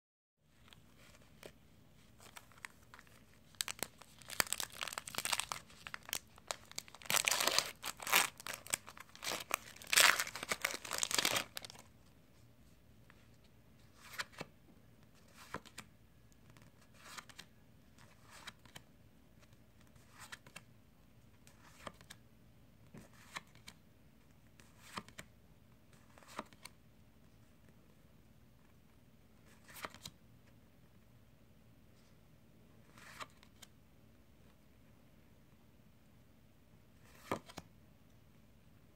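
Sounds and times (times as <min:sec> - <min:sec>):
foil wrapper crinkling and tearing: 0:03.5 - 0:11.8.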